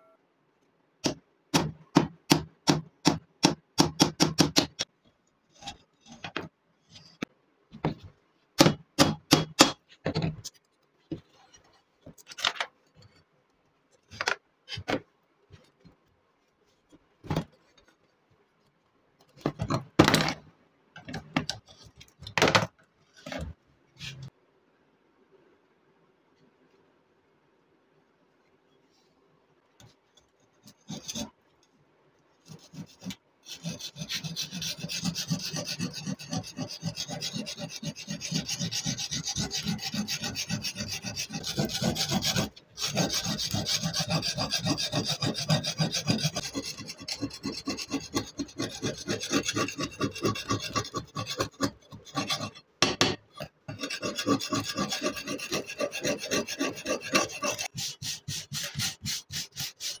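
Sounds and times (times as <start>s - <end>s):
steel tool scraping rusty blade: 32.5s - 52.6s, 53.4s - 60.0s.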